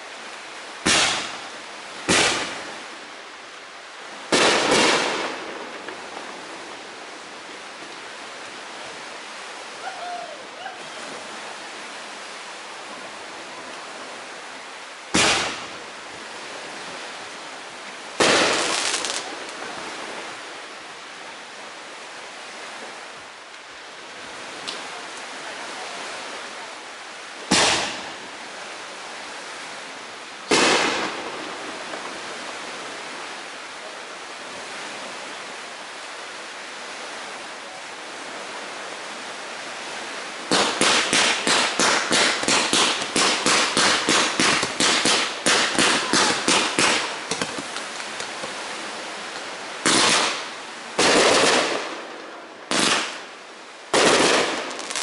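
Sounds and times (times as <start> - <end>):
steady hiss: 0.0 - 55.0
rapid firework pops: 0.8 - 1.4, 2.1 - 2.6, 4.3 - 6.0, 15.2 - 15.7, 27.5 - 28.0, 40.5 - 48.6, 49.8 - 50.4, 51.0 - 51.9, 52.7 - 53.2, 53.9 - 55.0
firework bangs: 0.8 - 2.7, 4.3 - 6.3, 15.1 - 15.8, 18.2 - 19.4, 27.5 - 28.2, 30.5 - 32.1, 40.5 - 48.3, 49.8 - 52.1, 52.7 - 53.3, 53.9 - 55.0.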